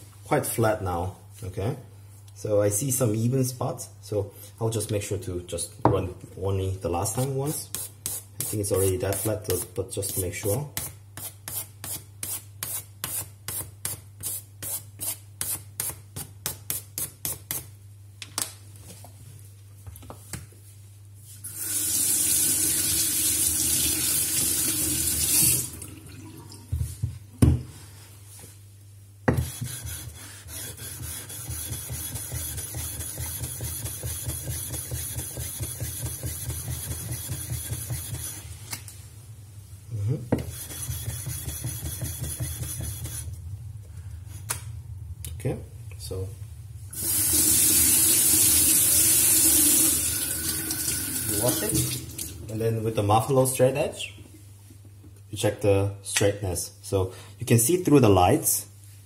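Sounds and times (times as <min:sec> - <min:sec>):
tap water running: 0:21.4 - 0:26.9, 0:46.9 - 0:52.5.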